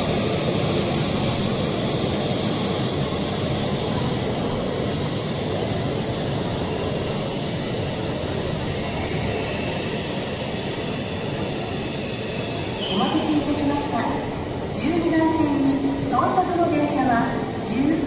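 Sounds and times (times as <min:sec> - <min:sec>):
train rushing and rumbling past: 0:00.0 - 0:18.0
high brake squeal: 0:08.1 - 0:13.4.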